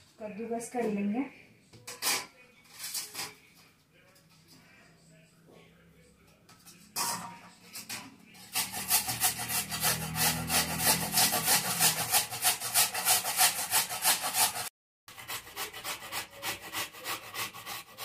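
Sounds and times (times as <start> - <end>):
carrots grated on metal grater: 8.4 - 18.0.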